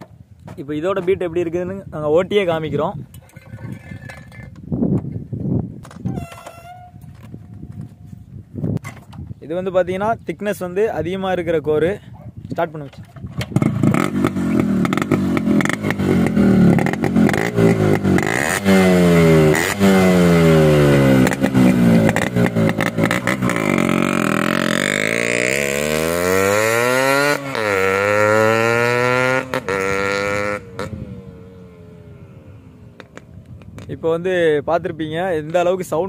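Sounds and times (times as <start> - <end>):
two-stroke motorcycle revving: 13.4 - 33.9
motorcycle riding off: 13.5 - 34.0.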